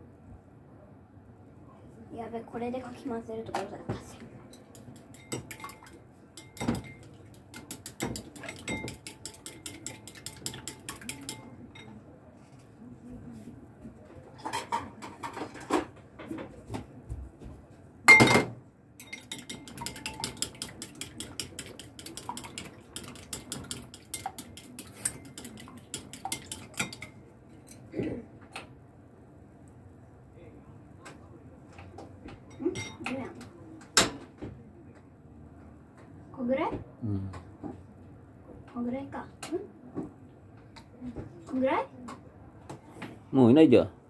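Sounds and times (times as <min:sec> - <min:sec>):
chopsticks beating eggs in bowl: 0:04.5 - 0:11.5, 0:19.0 - 0:27.2.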